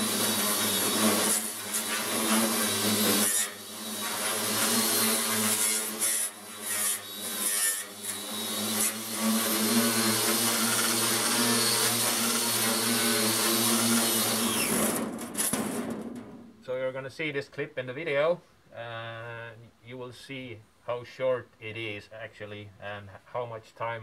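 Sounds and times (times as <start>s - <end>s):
angle grinder wire brush on steel: 0.0s - 15.6s.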